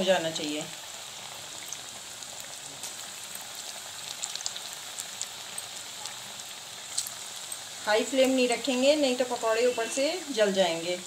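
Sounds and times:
oil popping and crackling: 0.0 - 9.3
deep-frying sizzle: 0.0 - 11.0.

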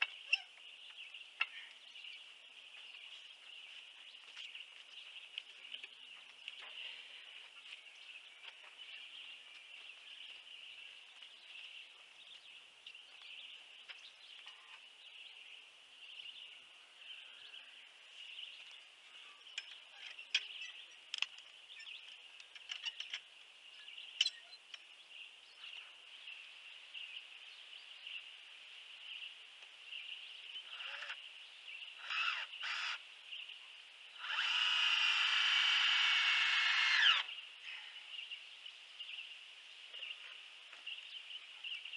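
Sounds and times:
birds calling: 0.0 - 41.9
high outdoor background noise: 0.0 - 41.9
power drill running: 34.2 - 37.3.

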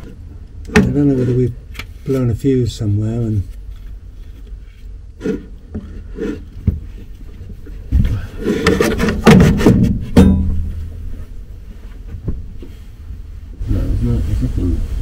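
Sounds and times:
rubbing and scraping on wood: 3.2 - 10.2
soft knocks: 12.0 - 12.8.

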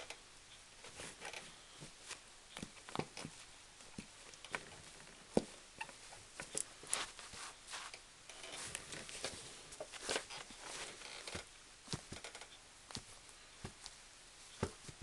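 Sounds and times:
shoes tapping and scuffing: 5.3 - 5.6, 8.6 - 12.2, 12.9 - 14.0, 14.6 - 15.0.

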